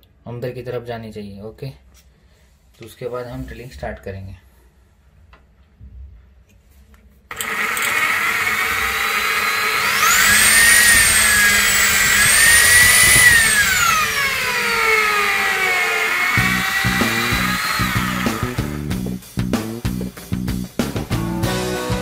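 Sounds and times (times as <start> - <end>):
drill motor whine: 7.3 - 18.9
background music: 16.4 - 22.0.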